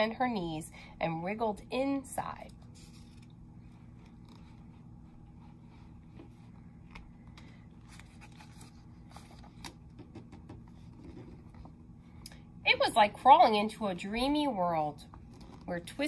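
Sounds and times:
low steady hum: 0.0 - 16.0
book page turning: 2.7 - 4.9, 5.5 - 9.9.

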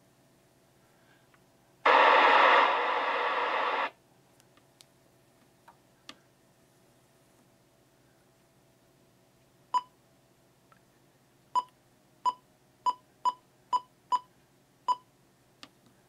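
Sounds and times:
radio receiver rushing noise: 1.9 - 4.0.

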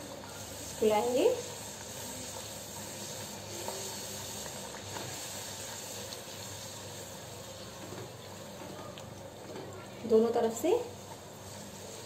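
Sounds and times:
hot oil sizzling: 0.0 - 12.0
faint crackles: 1.4 - 10.1.

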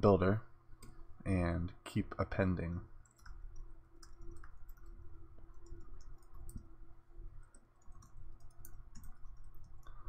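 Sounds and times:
faint steady hum: 0.0 - 10.0
keyboard typing: 3.0 - 6.8, 7.4 - 10.0.

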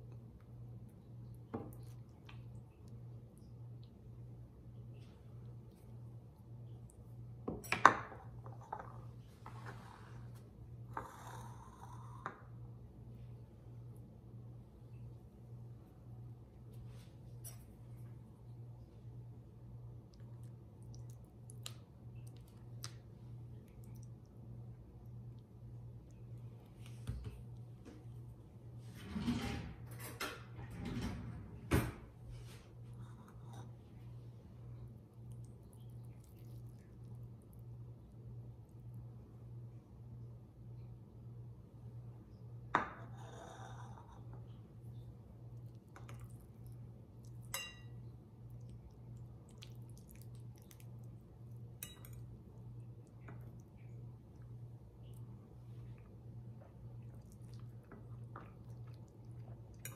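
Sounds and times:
soft sliding sounds: 9.2 - 10.5.

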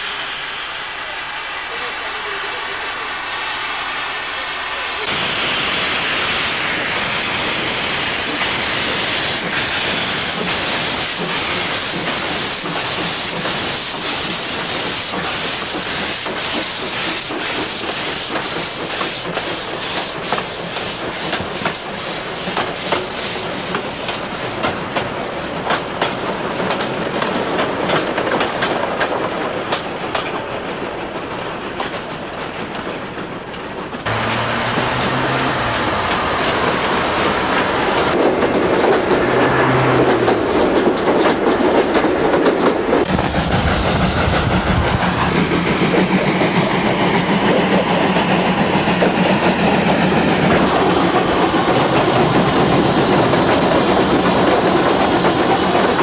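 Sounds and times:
steam train running past: 0.0 - 56.0
wheels clicking over rail joints: 39.9 - 43.2.

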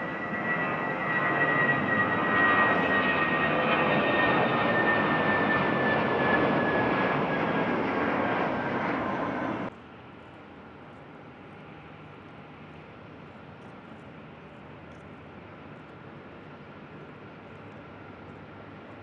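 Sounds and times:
jet engines whining: 0.0 - 9.7.

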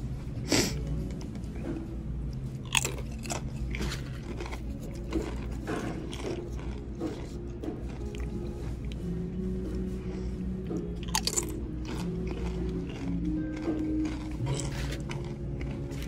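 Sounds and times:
chewing crunches: 0.6 - 9.0, 10.0 - 16.0
chip crunching: 2.3 - 9.0, 10.7 - 16.0.

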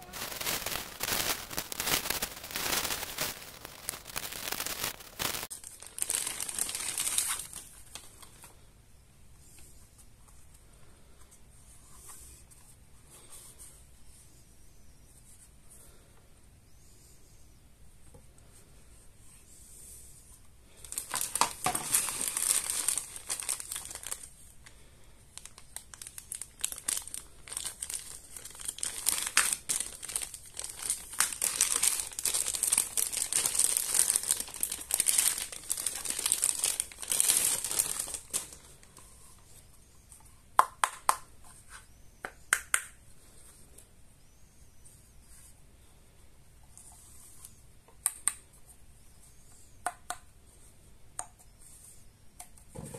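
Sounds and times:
plastic bags crinkling: 0.0 - 8.4, 20.8 - 24.3, 25.4 - 38.9.

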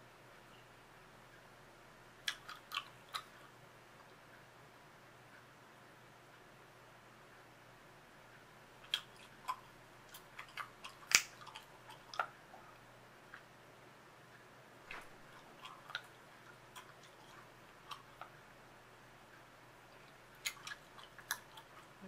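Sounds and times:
gum chewing clicks and smacks: 2.2 - 4.2, 8.8 - 13.5, 14.9 - 18.5, 19.3 - 22.0.

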